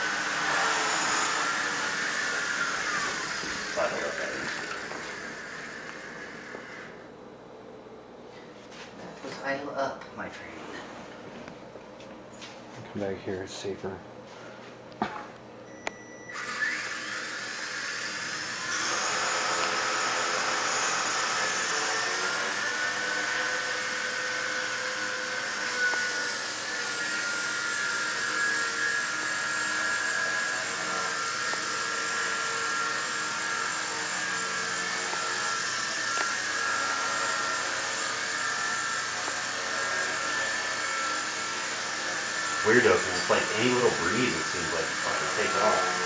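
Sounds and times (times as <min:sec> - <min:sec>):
rc helicopter rotor whine: 0:00.0 - 0:07.1, 0:16.3 - 0:46.0.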